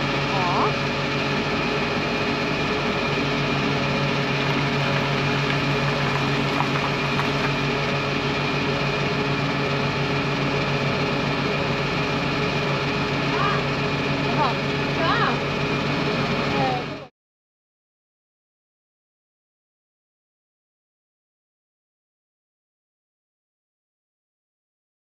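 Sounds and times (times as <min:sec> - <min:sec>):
fuel pump humming: 0:00.0 - 0:17.1.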